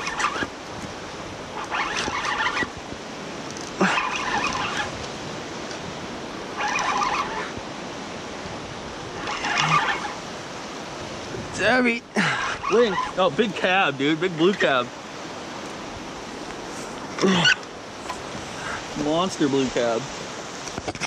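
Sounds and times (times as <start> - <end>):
fishing reel cranking: 0.0 - 0.5, 1.6 - 2.7, 3.5 - 5.8, 6.6 - 7.6, 9.2 - 10.2, 12.3 - 13.2
surf washing: 0.0 - 21.0.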